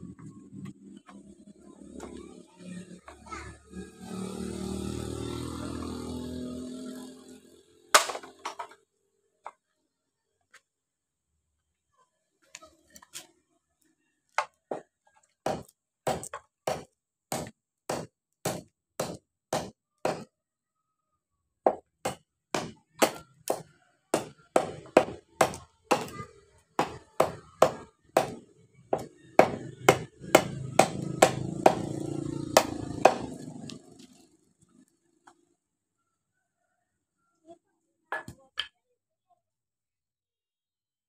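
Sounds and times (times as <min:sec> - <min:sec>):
knife chopping into wood: 0:15.5 - 0:20.3.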